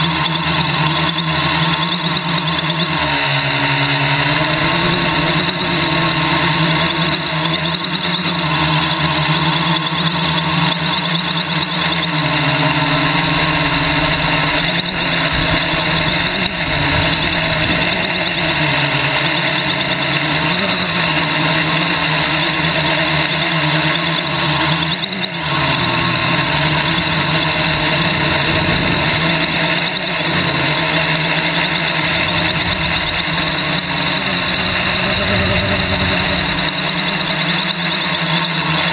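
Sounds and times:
drone motors whining: 0.0s - 38.9s
rushing prop wash: 25.2s - 38.9s.

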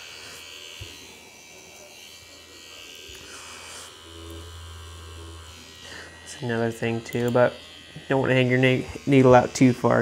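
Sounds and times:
tattoo machine buzzing: 0.0s - 10.0s.

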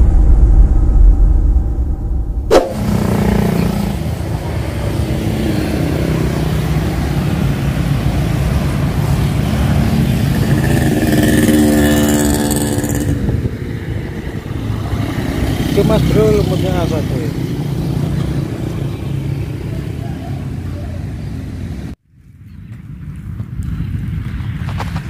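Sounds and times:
traffic engine rumble: 2.3s - 25.0s
motorcycle passing close: 2.5s - 22.0s.

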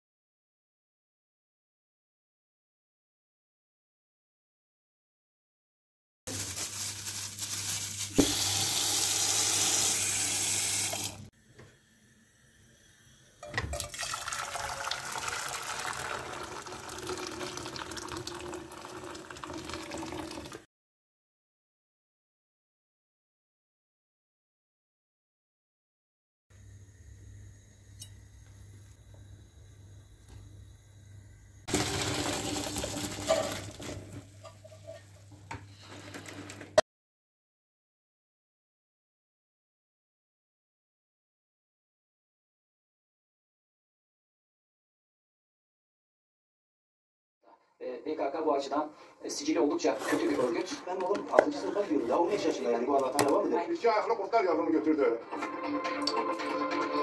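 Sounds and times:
tap water running into plastic bowl: 8.2s - 10.0s, 13.7s - 20.6s, 31.7s - 33.9s
water poured into metal pot: 13.4s - 20.6s, 31.7s - 34.2s.

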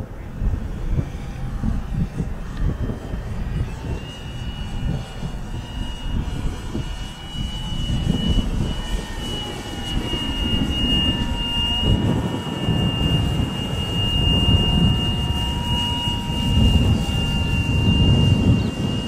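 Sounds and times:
model plane motor whine: 0.0s - 19.0s
wind buffeting microphone: 0.0s - 19.0s.

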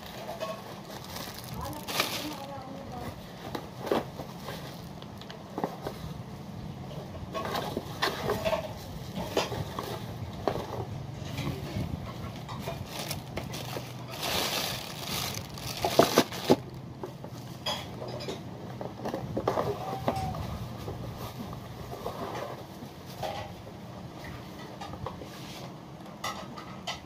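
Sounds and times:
plastic bag crinkling: 0.0s - 3.1s, 12.6s - 16.8s.

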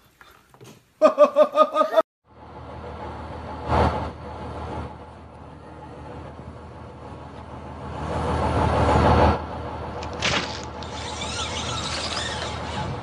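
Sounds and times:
tree trunk cracking: 10.0s - 10.9s.

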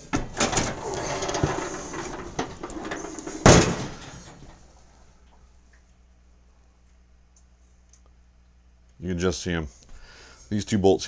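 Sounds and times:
loud thump: 3.4s - 4.4s.

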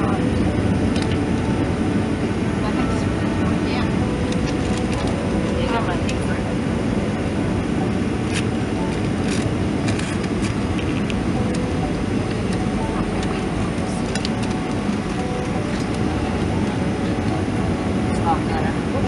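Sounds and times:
airplane cabin roar: 0.0s - 19.0s.

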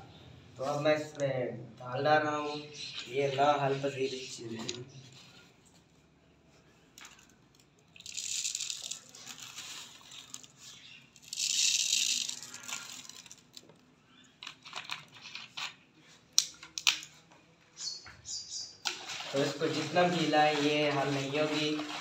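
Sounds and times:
lentils rustling in plastic bag: 7.0s - 13.7s, 18.9s - 22.0s
lentils dropping into plastic bottle: 7.0s - 13.8s.

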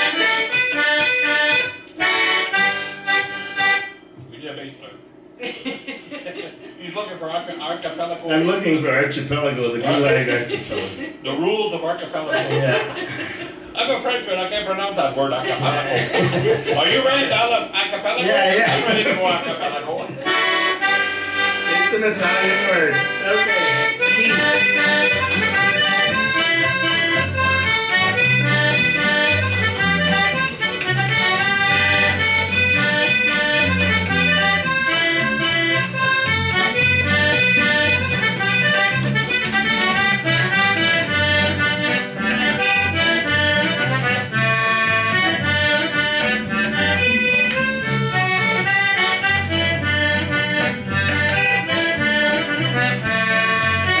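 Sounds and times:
accordion playing folk tune: 0.0s - 4.1s, 9.3s - 11.0s, 20.2s - 54.0s
guitar accompaniment: 0.0s - 4.3s, 18.2s - 54.0s
low bass notes: 20.8s - 54.0s.

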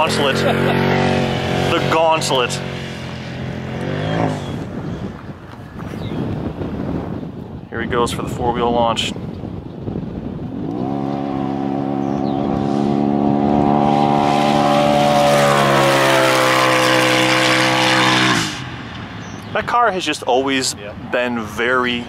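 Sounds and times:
engine revving at full throttle: 0.0s - 4.8s, 10.4s - 18.9s.

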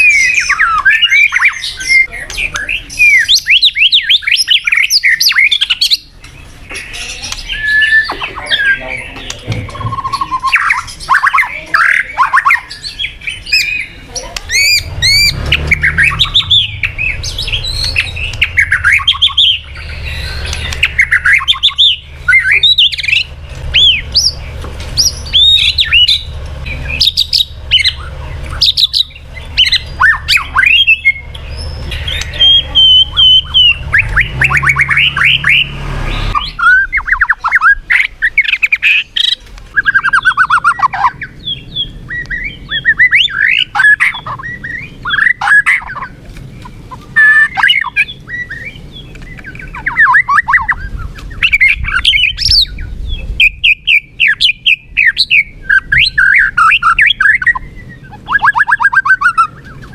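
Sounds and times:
bird singing whistled song: 0.0s - 59.9s
low hum: 14.3s - 38.4s.

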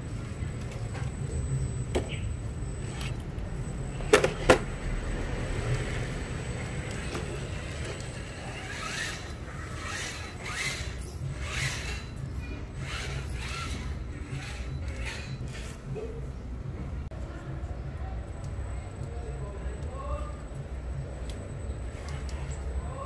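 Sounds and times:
model truck drivetrain and gears: 0.0s - 23.0s
short whirring bursts: 6.8s - 15.9s.

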